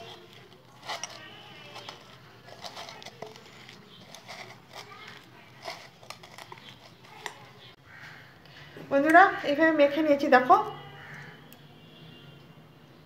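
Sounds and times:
faint voices: 0.0 - 8.4.

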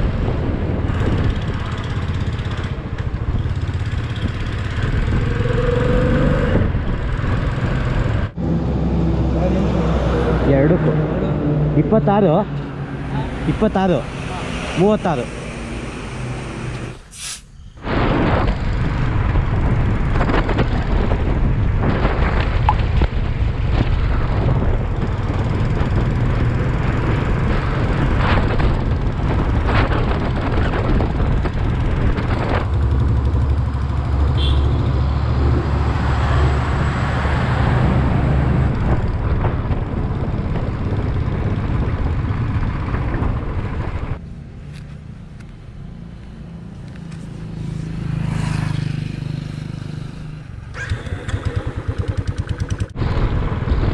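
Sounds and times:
wind on microphone: 0.0 - 10.4, 17.8 - 44.2, 48.8 - 53.9
heavy truck passing: 3.8 - 19.3
motorcycle engine running: 28.0 - 34.9, 46.8 - 53.9.

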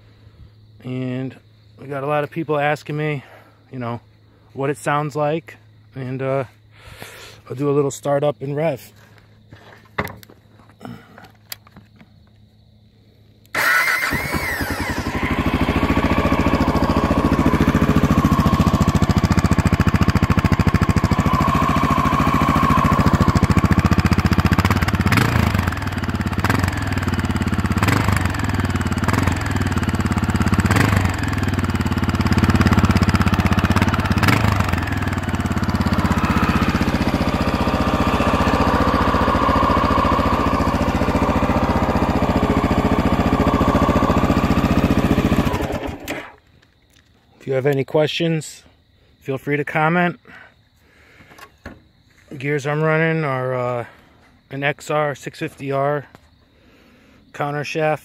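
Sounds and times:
engine throttle blips: 13.5 - 46.4
motorcycle engine idling: 13.5 - 46.4
motorcycle engine starting: 13.5 - 46.6.

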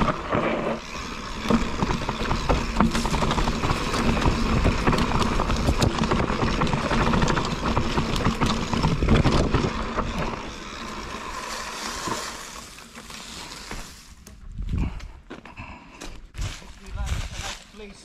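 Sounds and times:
tyres rolling on gravel: 0.0 - 14.5
bike clicks and rattles: 0.0 - 18.0.

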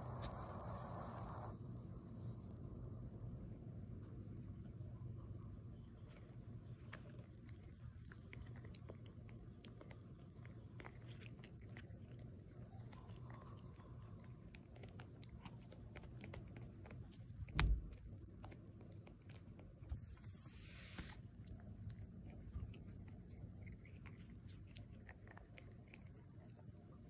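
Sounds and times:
dog chewing a hard treat: 6.8 - 20.2
thump: 17.5 - 18.0.

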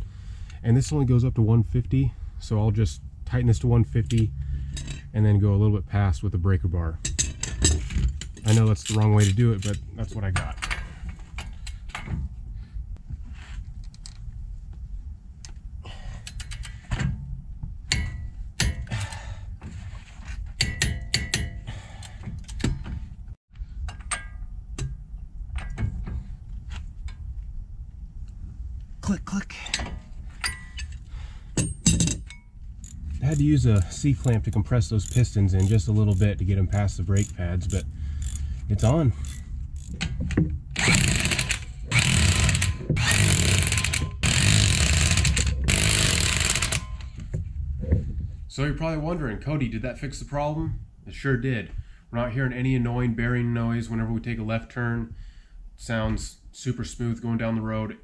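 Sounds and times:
impact wrench hammering: 20.6 - 21.7, 40.8 - 47.0
torque wrench ratcheting clicks: 32.8 - 40.1, 40.8 - 47.1.

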